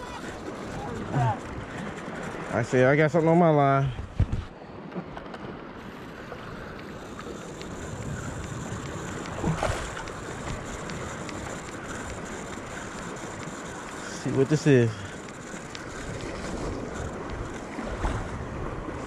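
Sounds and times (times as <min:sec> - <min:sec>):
small waves washing in: 0:00.0 - 0:19.0
wind on microphone: 0:03.9 - 0:04.5.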